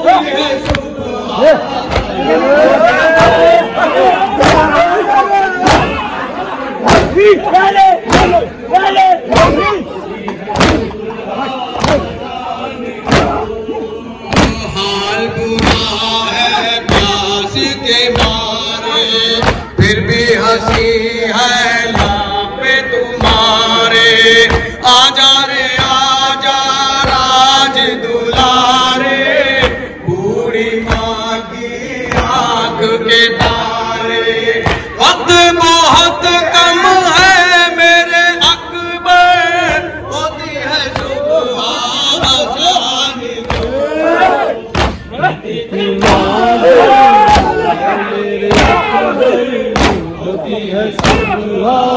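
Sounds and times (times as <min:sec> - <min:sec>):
voices chanting a lament: 0:00.0 - 0:51.9
hands striking chests: 0:01.9 - 0:02.2, 0:05.6 - 0:06.0, 0:06.9 - 0:07.2, 0:08.1 - 0:08.4, 0:10.6 - 0:11.0, 0:11.8 - 0:12.2, 0:13.0 - 0:13.4, 0:14.3 - 0:14.7, 0:15.6 - 0:16.0, 0:18.1 - 0:18.5, 0:19.4 - 0:19.8, 0:20.7 - 0:21.0, 0:21.9 - 0:22.2, 0:32.1 - 0:32.4, 0:34.6 - 0:34.9, 0:43.4 - 0:43.8, 0:44.7 - 0:45.1, 0:46.0 - 0:46.4, 0:48.5 - 0:48.9, 0:49.8 - 0:50.1, 0:51.0 - 0:51.4.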